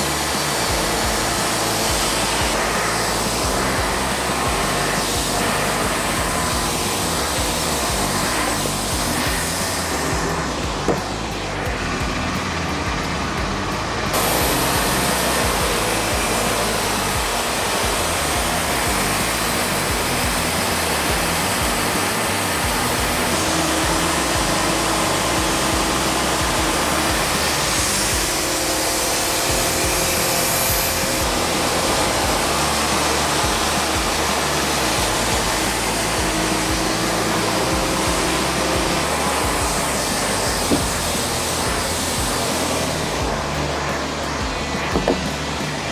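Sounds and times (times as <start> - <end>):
band sawmill sawing log: 0.0 - 45.9
sharp knock: 44.7 - 45.6.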